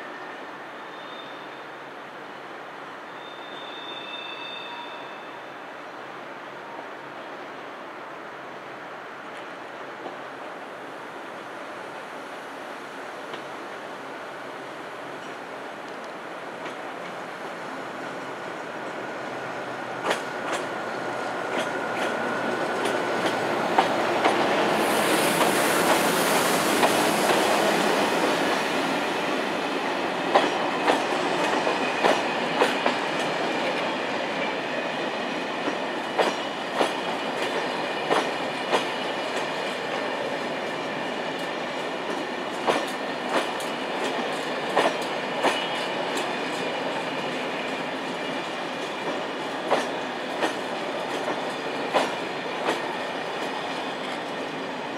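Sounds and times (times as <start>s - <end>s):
train coaches rumbling past: 8.3s - 54.9s
electric locomotive whine: 12.0s - 54.9s.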